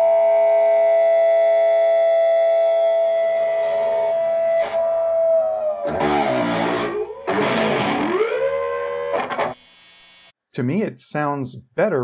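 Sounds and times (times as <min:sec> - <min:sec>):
distorted guitar chords strummed: 0:00.0 - 0:09.6
guitar feedback note: 0:01.2 - 0:09.6.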